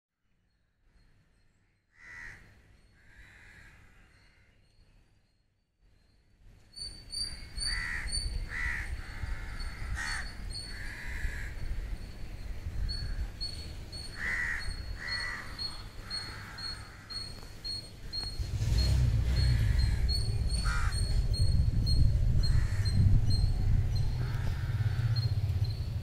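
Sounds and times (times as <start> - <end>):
crows cawing: 1.9 - 4.6, 7.7 - 12.0, 14.1 - 17.5, 19.6 - 21.1, 22.4 - 23.0, 23.7 - 25.3
low rumble: 18.1 - 26.0.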